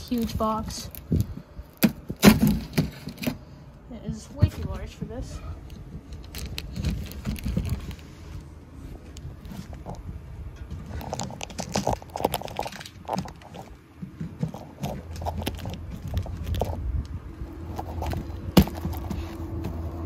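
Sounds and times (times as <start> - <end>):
low steady hum: 0.0 - 20.0
knocks clicks and rustling: 9.2 - 20.0.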